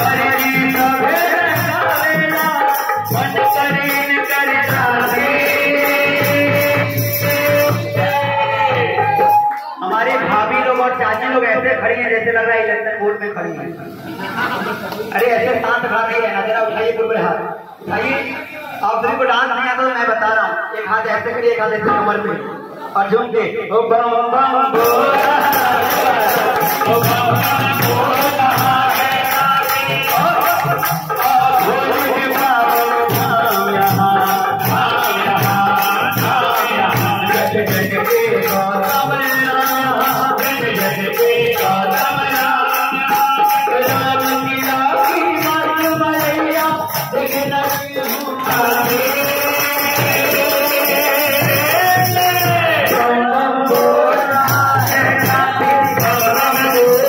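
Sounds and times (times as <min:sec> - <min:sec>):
jingling percussion: 0:00.0 - 0:09.8, 0:24.8 - 0:57.0
people clapping: 0:09.0 - 0:11.4, 0:24.8 - 0:42.2, 0:47.0 - 0:52.4
hand drum beats: 0:24.8 - 0:53.0
devotional melody: 0:24.8 - 0:57.0.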